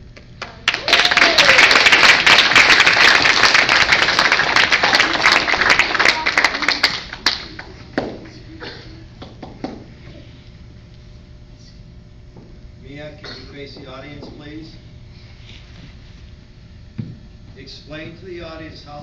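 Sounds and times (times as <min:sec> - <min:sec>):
audience applause: 0:00.4 - 0:07.8
children clapping: 0:00.4 - 0:08.3.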